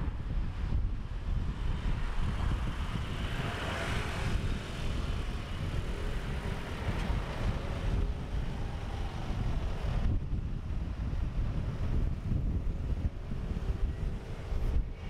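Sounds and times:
passing road traffic: 0.0s - 15.0s
wind buffeting microphone: 0.0s - 15.0s.

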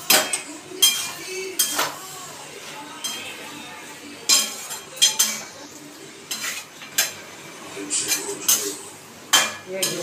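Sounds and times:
spatula clanking against pan: 0.0s - 2.1s, 3.0s - 3.4s, 4.2s - 5.6s, 6.3s - 7.2s, 8.0s - 10.0s
spatula stirring curry: 0.0s - 10.0s.

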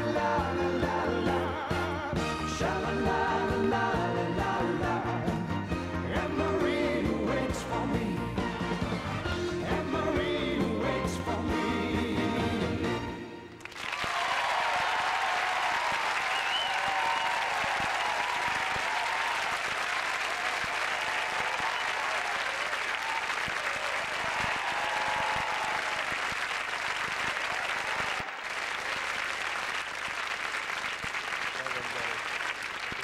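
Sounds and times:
audience applauding: 13.6s - 33.0s
people cheering: 13.6s - 33.0s.

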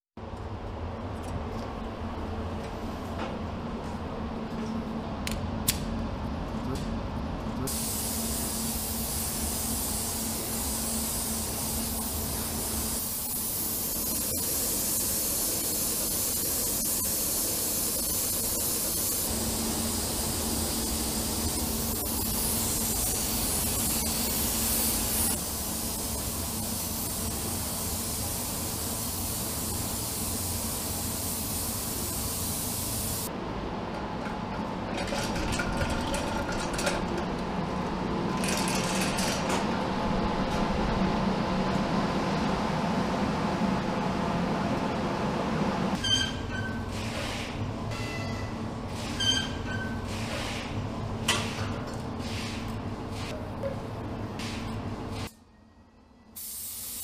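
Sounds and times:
spray gun hissing: 7.7s - 33.3s, 56.4s - 57.0s.

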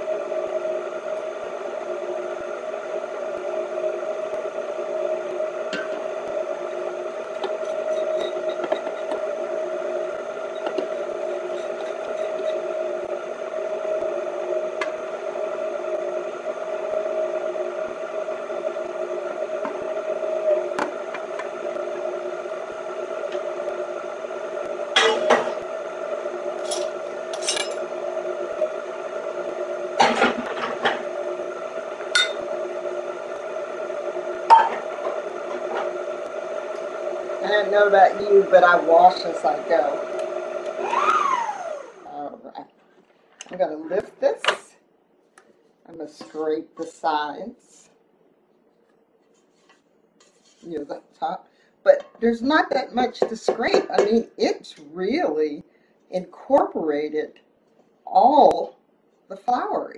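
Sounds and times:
stand mixer motor whine: 0.0s - 42.4s.

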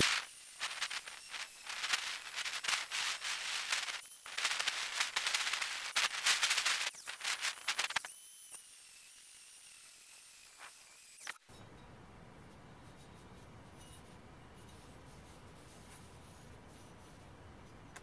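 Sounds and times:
angle grinder grinding steel: 0.0s - 11.4s.

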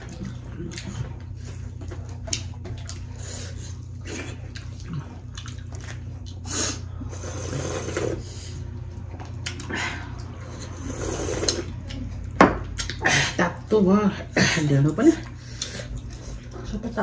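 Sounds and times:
chewing and lip-smacking: 0.0s - 7.6s, 8.6s - 13.0s, 14.8s - 16.8s
slurp of soup: 6.5s - 8.5s, 10.6s - 11.8s.

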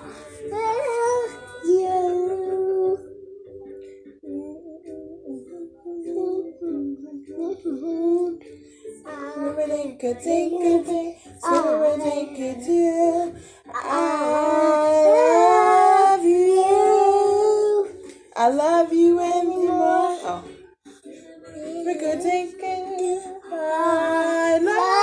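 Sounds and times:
background music: 0.0s - 25.0s
high voice singing: 4.2s - 8.4s, 9.0s - 18.0s, 21.5s - 25.0s.

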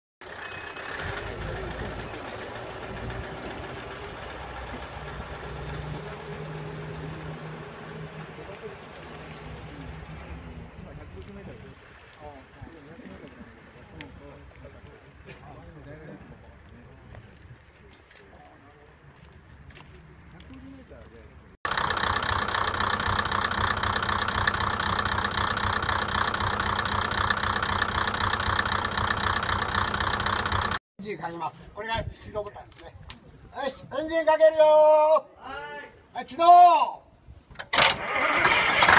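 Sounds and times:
diesel railcar engine hum: 0.2s - 15.8s, 18.9s - 30.8s.

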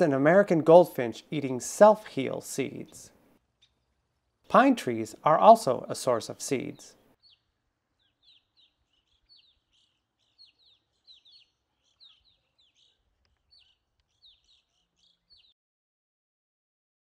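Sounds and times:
chickadee high chirps: 6.6s - 15.5s.

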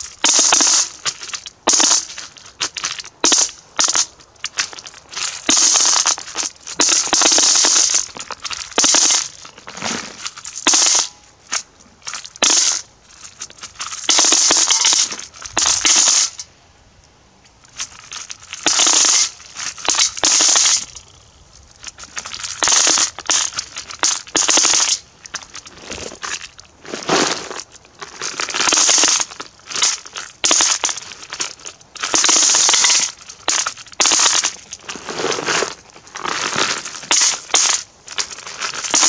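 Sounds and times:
coins pouring into metal bucket: 36.8s - 37.8s, 38.7s - 39.0s.

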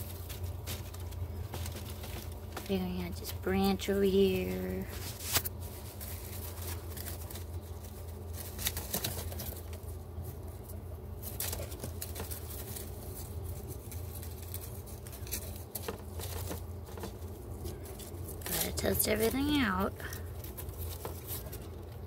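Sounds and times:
squirrel rustling in dry hay: 0.0s - 22.0s
steady low hum: 0.0s - 22.0s.

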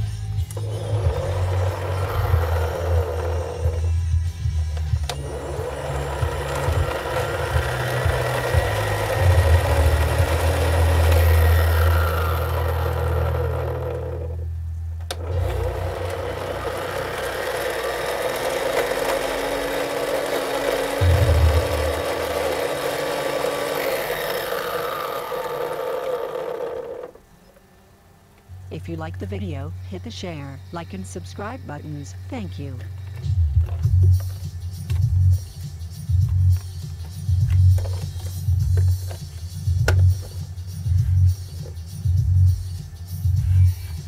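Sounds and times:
toy race track motor drone: 0.4s - 4.0s, 5.0s - 14.4s, 15.1s - 27.2s.

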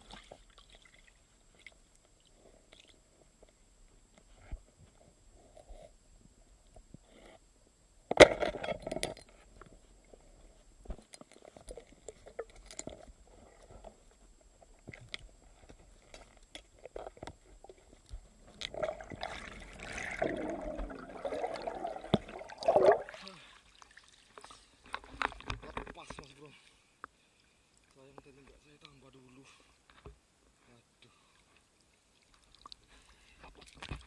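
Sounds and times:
water splash: 18.6s - 23.3s
rush of water and bubbles: 18.6s - 24.2s.

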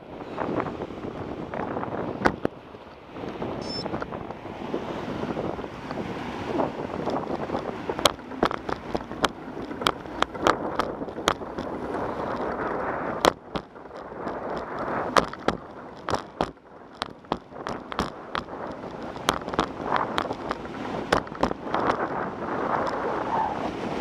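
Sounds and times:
bicycle rolling on concrete: 0.0s - 24.0s
wind noise on microphone: 0.0s - 24.0s
bike clicks and rattles: 5.3s - 23.1s.

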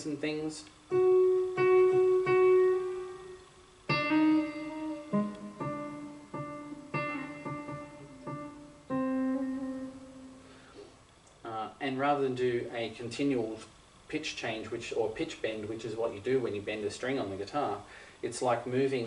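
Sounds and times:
synthesizer piano notes: 0.9s - 10.7s.

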